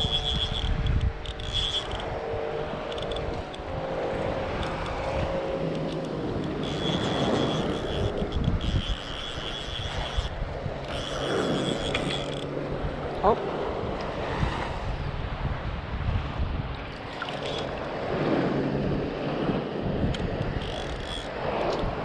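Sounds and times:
distant motorboat hum: 0:00.0 - 0:22.0
shallow water lapping: 0:00.0 - 0:22.0
wind buffeting microphone: 0:00.0 - 0:22.0
short rising squeak: 0:06.6 - 0:10.3.

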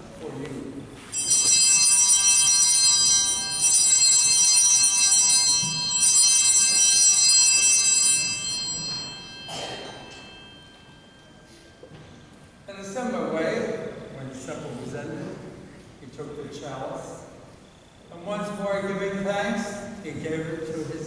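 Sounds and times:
small altar bells ringing: 0:01.1 - 0:13.1.

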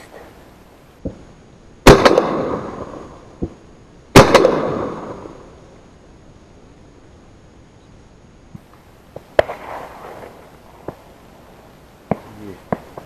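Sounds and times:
shotgun shots with echo: 0:01.8 - 0:02.9, 0:04.2 - 0:05.2
distant dull shots: 0:01.8 - 0:03.6, 0:04.2 - 0:05.4, 0:09.2 - 0:11.0, 0:12.0 - 0:13.0.

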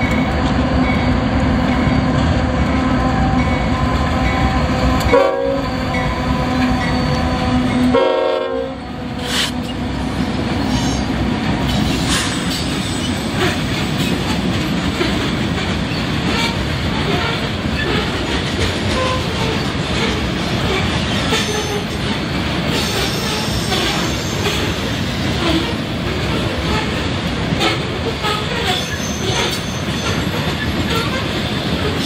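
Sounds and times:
diesel locomotive engine hum: 0:00.0 - 0:32.0
train cars rolling rumble: 0:00.0 - 0:32.0
train horn blast: 0:03.8 - 0:09.7
wheels clacking over rail joints: 0:09.3 - 0:32.0.

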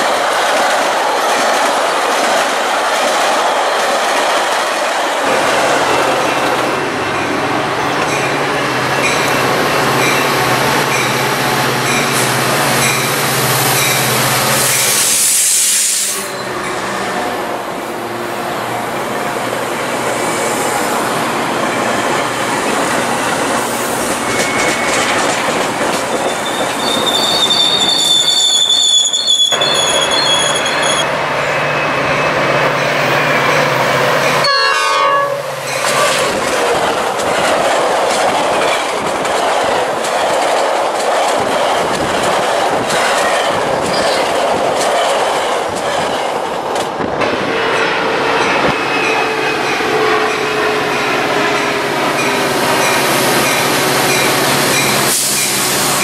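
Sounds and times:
train approaching: 0:00.0 - 0:56.0
train wheels clattering on rails: 0:21.4 - 0:28.6, 0:35.6 - 0:56.0
high-pitched wheel squeal: 0:26.2 - 0:31.1.

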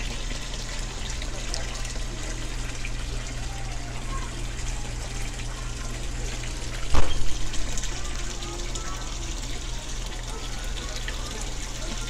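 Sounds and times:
low steady hum: 0:00.0 - 0:12.0
water gushing into pond: 0:00.0 - 0:12.0
brief thump: 0:06.9 - 0:07.3.

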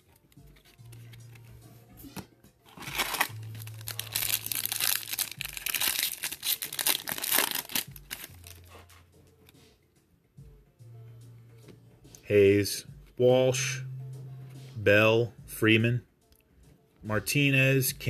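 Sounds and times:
foil wrapper crinkling and tearing: 0:02.7 - 0:08.6.

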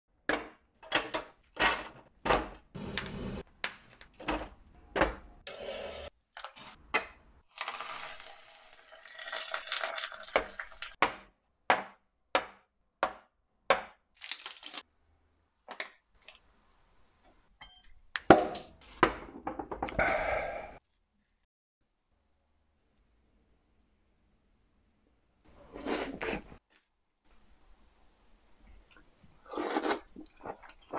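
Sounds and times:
kitchenware clanking and clinking: 0:00.3 - 0:02.6, 0:17.6 - 0:20.0.

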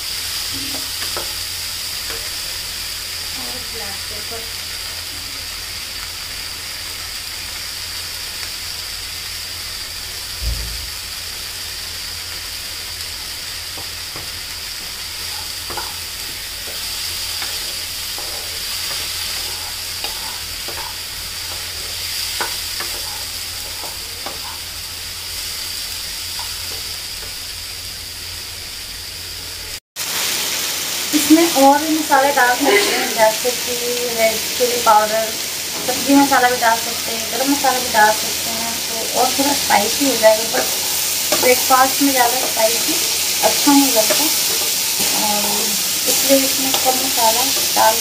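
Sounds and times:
food sizzling in a pan: 0:00.0 - 0:48.0
dull thump: 0:10.4 - 0:11.0
wooden spatula stirring and scraping: 0:15.2 - 0:24.7.

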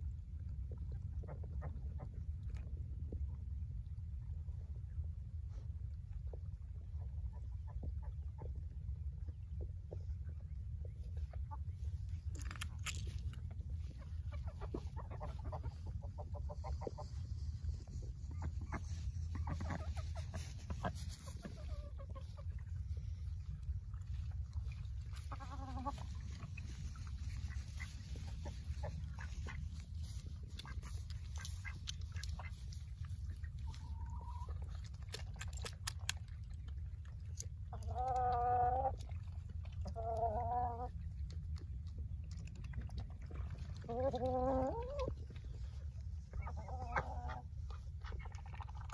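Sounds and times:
steady low rumble: 0:00.0 - 0:48.9
beaks pecking and dabbling: 0:06.1 - 0:48.9
hens clucking: 0:12.4 - 0:35.0, 0:43.8 - 0:48.9.

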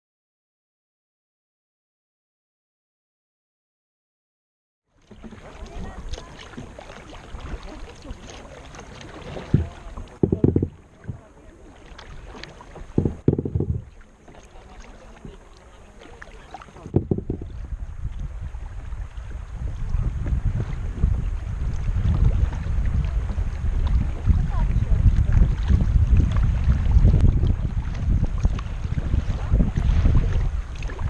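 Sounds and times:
paddle splashes: 0:04.9 - 0:31.0
water lapping around hull: 0:04.9 - 0:31.0
wind buffeting microphone: 0:05.2 - 0:11.5, 0:12.1 - 0:14.0, 0:16.8 - 0:31.0.

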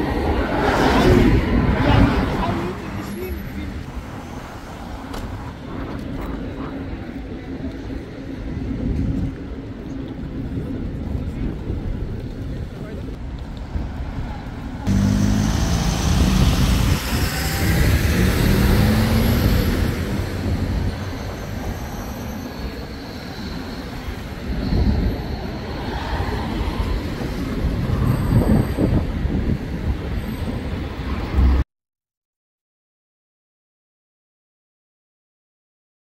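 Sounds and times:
bus engine hum: 0:00.0 - 0:31.6
traffic driving past: 0:13.8 - 0:29.0.

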